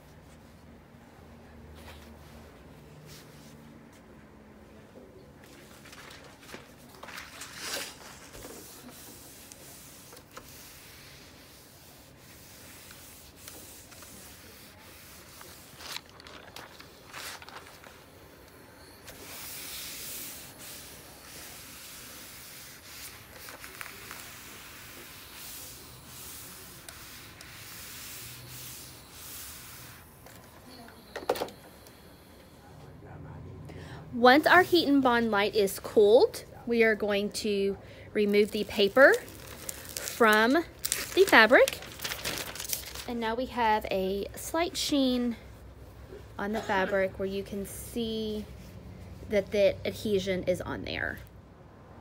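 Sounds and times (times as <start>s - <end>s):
paper rustling: 5.4s - 18.2s, 19.1s - 28.1s, 38.3s - 43.1s
iron rubbing over paper: 7.3s - 31.1s, 38.2s - 43.0s.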